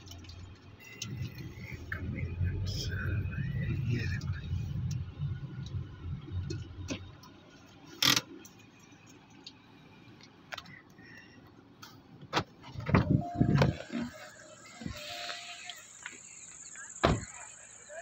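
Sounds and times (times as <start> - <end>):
brief tone: 13.2 - 16.3.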